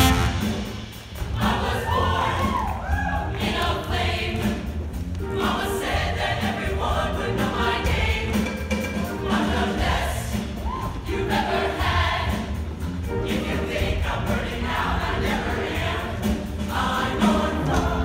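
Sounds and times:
instrumental backing with steady bass: 0.0 - 2.6
choir singing: 1.2 - 18.0.

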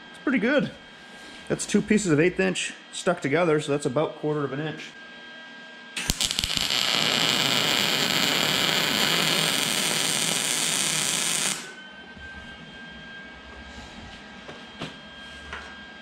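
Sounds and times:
welder arc crackling: 6.0 - 11.8.

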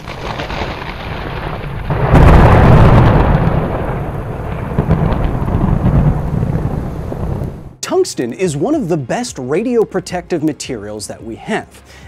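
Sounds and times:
thunder rolling: 0.0 - 7.8.

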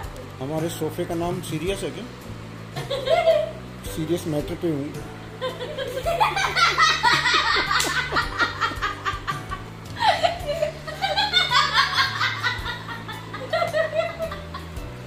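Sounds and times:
women laughing: 2.8 - 3.6, 5.4 - 14.8.

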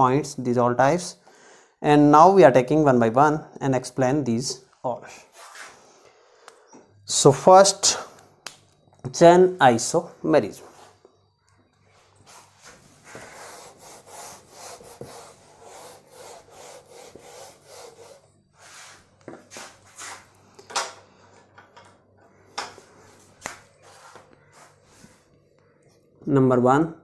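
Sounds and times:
eraser rubbing whiteboard: 12.2 - 20.3.

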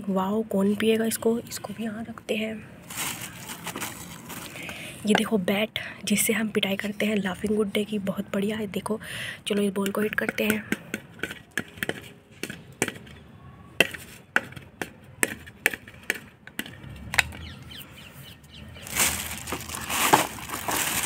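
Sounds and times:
rustling: 2.8 - 4.7, 18.8 - 21.0
plastic bat hitting plastic ball: 13.8 - 17.3.

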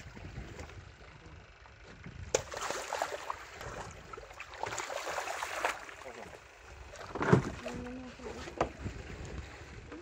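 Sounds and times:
fish thrashing and splashing water: 2.3 - 9.7.

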